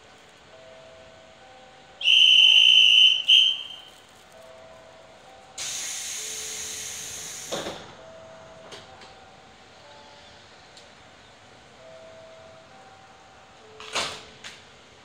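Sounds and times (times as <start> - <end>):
whistle blasts: 2.0 - 3.9
compressed air hiss: 5.6 - 7.8
train doors shutting thud: 5.6 - 9.2, 13.7 - 14.7.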